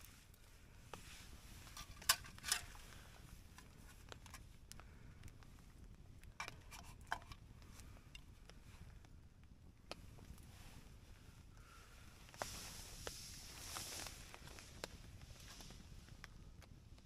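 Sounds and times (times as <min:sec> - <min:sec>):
campfire wood crackling: 0:00.0 - 0:17.0.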